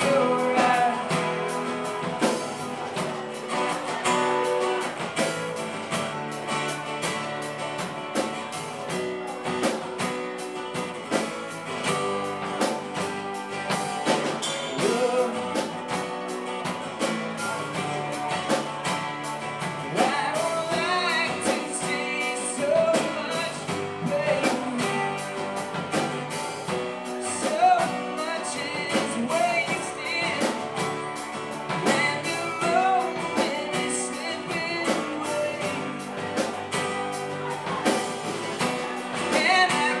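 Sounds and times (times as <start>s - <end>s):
man singing: 0.0s - 4.8s, 14.0s - 40.0s
drums: 0.0s - 40.0s
strummed acoustic guitars: 0.0s - 40.0s.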